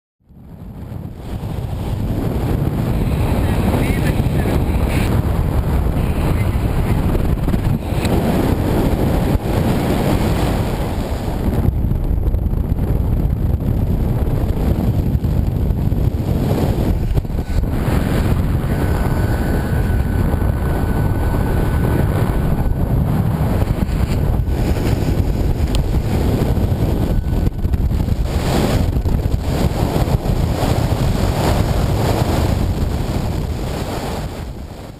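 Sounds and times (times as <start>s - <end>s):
wind buffeting microphone: 0.2s - 34.9s.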